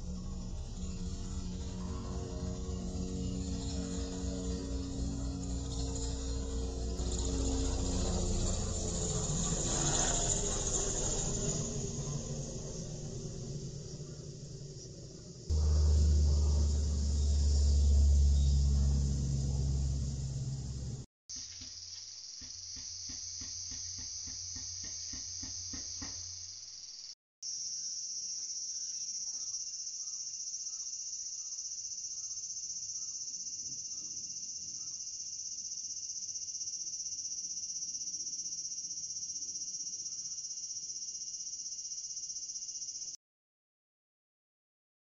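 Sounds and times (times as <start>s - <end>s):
low hum: 0.0s - 21.1s
insects singing drone: 0.0s - 43.2s
faint chirps: 11.2s - 36.6s.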